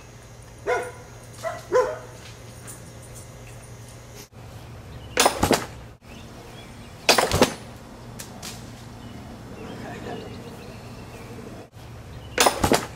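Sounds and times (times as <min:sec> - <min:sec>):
catapult arm thudding: 0:05.2 - 0:05.8, 0:07.1 - 0:07.7, 0:12.4 - 0:12.9.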